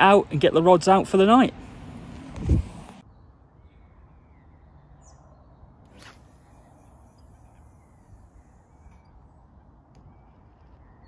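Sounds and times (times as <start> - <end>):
faint bird chirps: 3.0 - 11.0.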